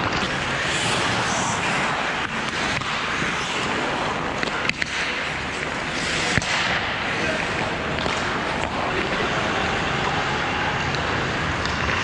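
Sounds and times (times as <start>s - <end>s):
skate blades scraping ice: 0.0s - 9.8s
hockey stick clacks: 2.2s - 10.2s, 10.8s - 12.0s.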